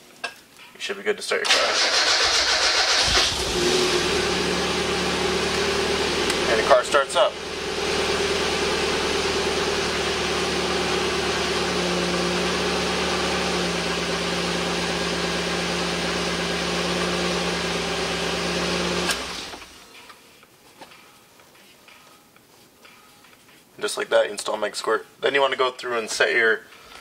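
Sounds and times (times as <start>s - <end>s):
car engine idling: 1.8s - 19.8s.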